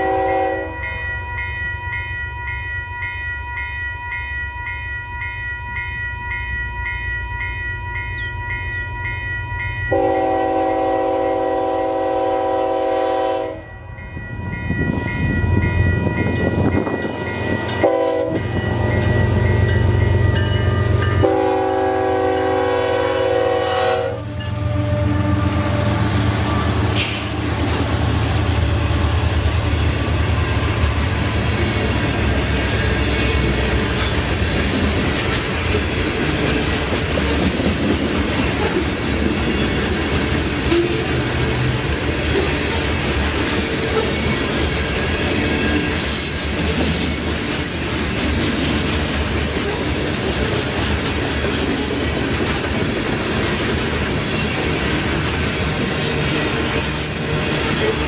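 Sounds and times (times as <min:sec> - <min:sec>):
train air horn: 0:00.0 - 0:00.8, 0:09.9 - 0:13.7, 0:17.8 - 0:18.4, 0:21.2 - 0:27.5
railroad crossing bell ringing: 0:00.0 - 0:52.7, 0:53.6 - 0:58.0.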